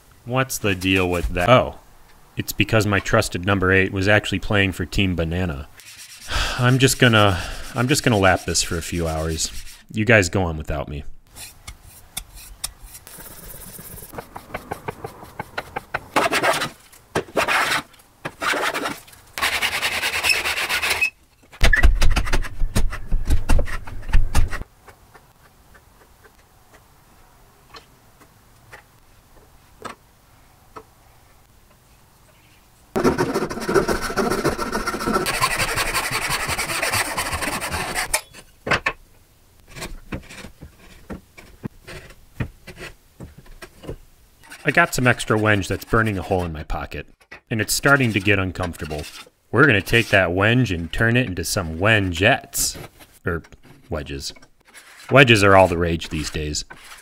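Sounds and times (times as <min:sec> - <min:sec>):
metal rubbing on abrasive: 0:05.8 - 0:09.9, 0:11.3 - 0:21.2, 0:33.0 - 0:38.1, 0:47.6 - 0:53.2, 0:54.6 - 0:57.0.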